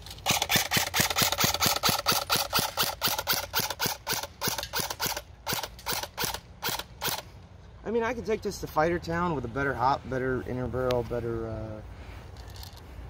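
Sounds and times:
airsoft gun rapid firing: 0.2 - 7.2.

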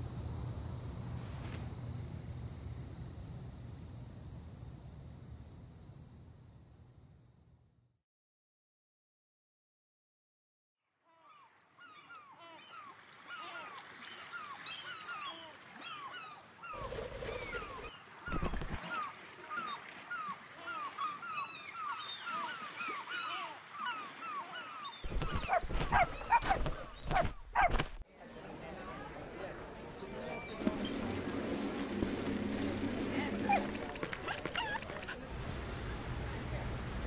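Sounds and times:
seagulls calling: 11.1 - 27.8, 30.7 - 35.2.

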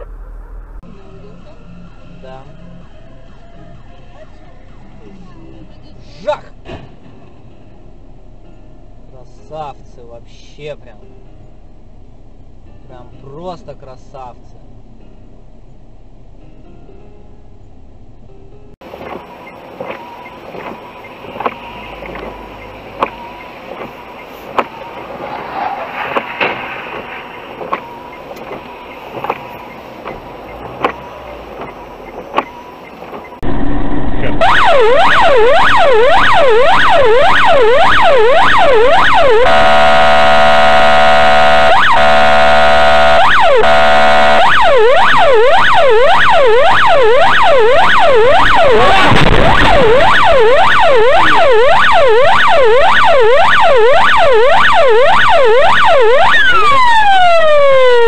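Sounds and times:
low cabin noise: 0.0 - 52.4
electronic siren yelping: 19.4 - 58.0.

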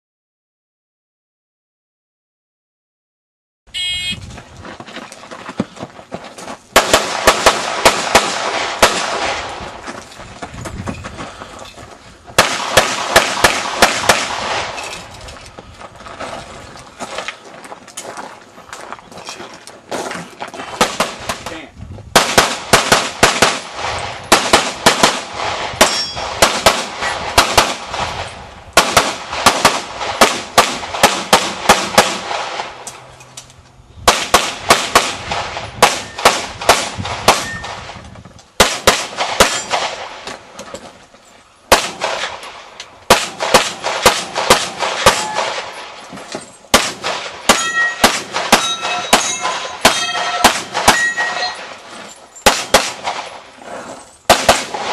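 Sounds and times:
pistol shots: 6.8 - 9.7, 12.4 - 14.8, 20.8 - 21.6, 22.2 - 32.8, 34.1 - 38.0, 38.6 - 40.4, 41.7 - 46.0, 46.7 - 51.8, 52.4 - 53.4, 54.3 - 54.9
steel targets ringing: 25.8 - 26.3, 45.0 - 45.8, 47.5 - 52.5.

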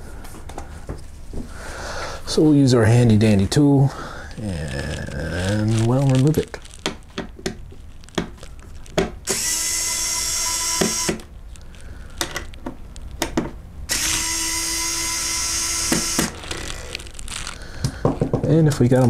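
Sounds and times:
electric screwdriver running: 9.3 - 11.3, 13.9 - 17.2.

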